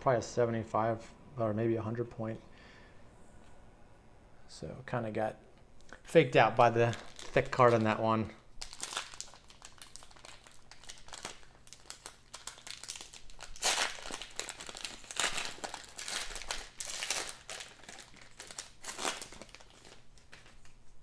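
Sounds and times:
foil wrapper crinkling and tearing: 6.6s - 8.0s, 8.6s - 20.8s.

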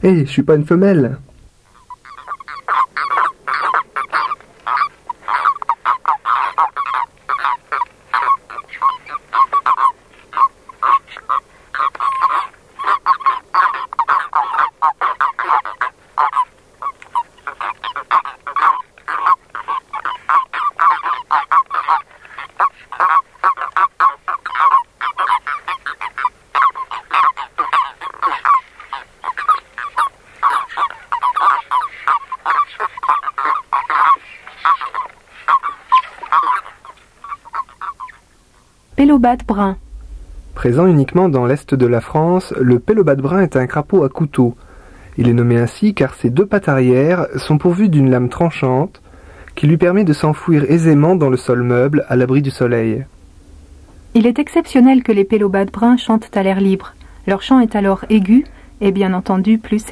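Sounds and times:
toads chirping: 1.6s - 52.2s.

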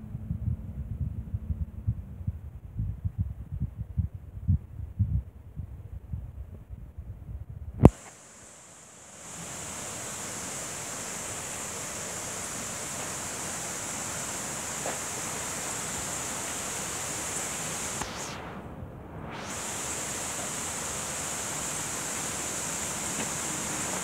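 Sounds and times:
steady rushing noise: 7.8s - 24.0s
thin high hiss: 7.8s - 24.0s.

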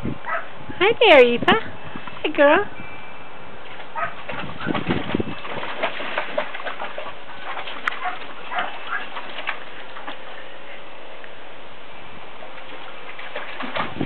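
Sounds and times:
puppy splashing in water: 3.6s - 10.6s, 12.3s - 14.0s.

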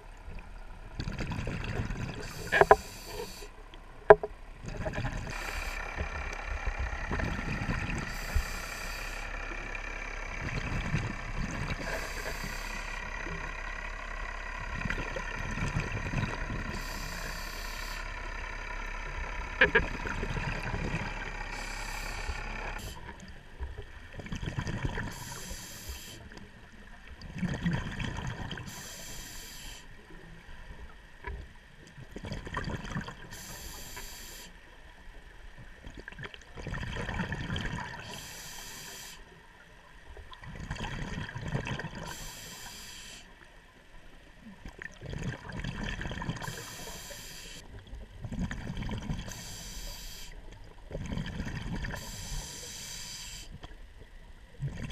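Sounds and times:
exhaled bubbles rumbling: 0.0s - 25.6s, 26.4s - 28.9s, 30.3s - 33.5s, 35.6s - 38.2s, 39.6s - 42.2s, 44.4s - 46.7s, 47.7s - 49.4s, 50.5s - 52.3s, 53.7s - 54.9s
regulator hissing breaths: 2.2s - 3.5s, 5.3s - 6.0s, 8.1s - 9.4s, 11.8s - 13.1s, 16.7s - 18.2s, 21.4s - 23.1s, 25.1s - 26.3s, 28.7s - 30.0s, 33.3s - 34.6s, 38.0s - 39.3s, 42.1s - 43.3s, 46.4s - 47.6s, 49.3s - 50.4s, 51.9s - 53.6s.

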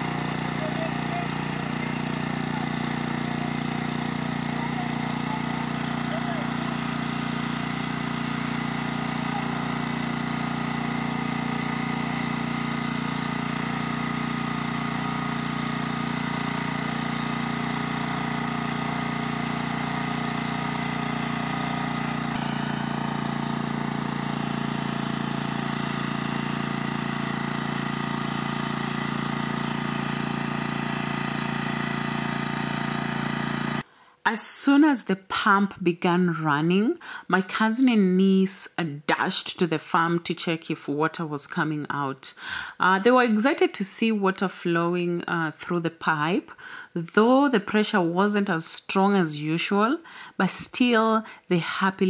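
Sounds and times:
small petrol water pump engine: 0.0s - 34.0s.

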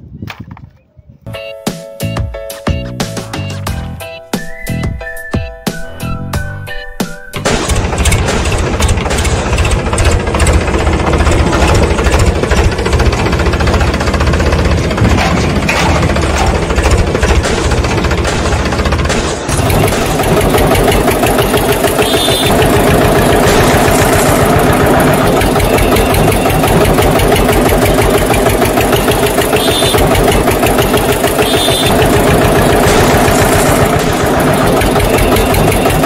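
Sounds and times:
diesel tractor engine chugging: 7.4s - 36.0s.

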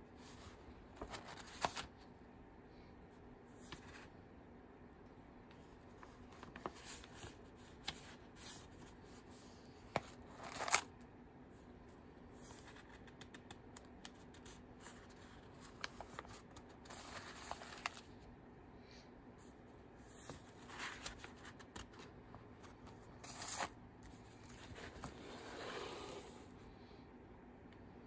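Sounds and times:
paper pages rustling: 0.2s - 2.0s, 3.6s - 4.1s, 5.5s - 10.9s, 12.4s - 18.2s, 20.0s - 26.3s.

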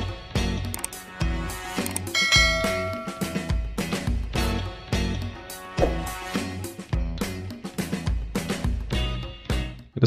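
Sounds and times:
music with bass and beat: 5.8s - 9.8s.

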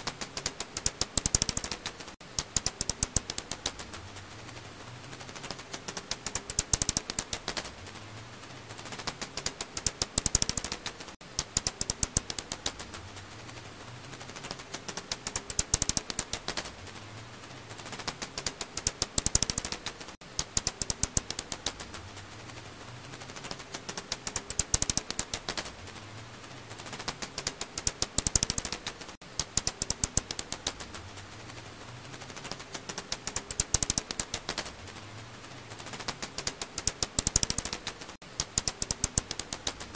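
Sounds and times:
bat calls as rapid clicks: 0.0s - 4.0s, 5.2s - 7.8s, 8.8s - 13.0s, 14.4s - 16.8s, 17.8s - 22.0s, 23.3s - 25.8s, 26.8s - 31.0s, 32.2s - 34.8s, 35.8s - 39.9s.

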